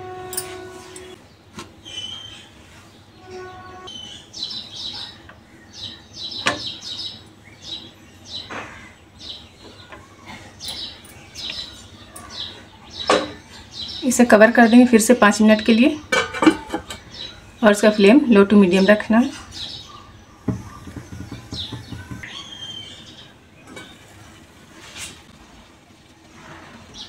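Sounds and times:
steel bowls clinking on metal: 0.3 - 1.1
small birds chirping: 1.0 - 24.5.

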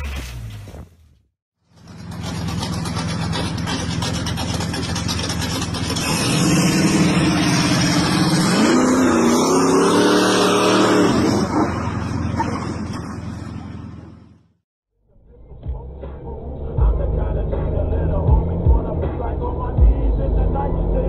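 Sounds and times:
car engine revving hard: 2.3 - 12.0.

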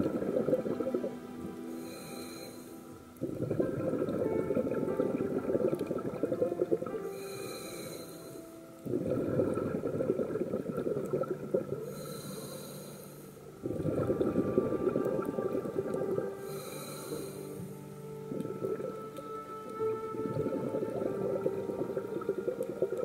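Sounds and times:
rush of exhaled bubbles: 0.0 - 1.1, 3.2 - 6.9, 8.9 - 12.0, 13.6 - 17.4
regulator inhale hiss: 1.6 - 3.0, 7.0 - 8.6, 11.8 - 13.5, 16.4 - 17.9.

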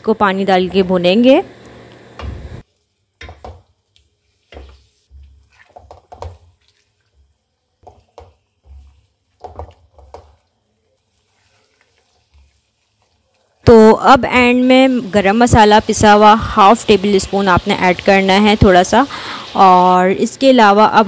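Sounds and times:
spatula stirring meat in stock: 2.6 - 18.9
spatula scraping pan: 7.9 - 13.8.

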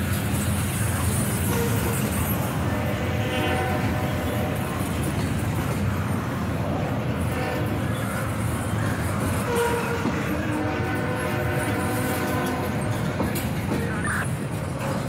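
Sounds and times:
freight train rumbling and rattling: 0.0 - 15.0
train horn: 1.4 - 4.8, 7.2 - 7.9, 9.4 - 13.2.

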